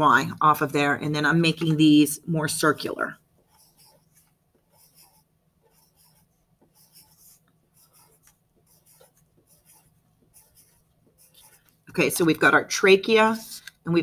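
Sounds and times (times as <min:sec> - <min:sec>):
pencil scratching on paper: 0:02.6 - 0:12.2.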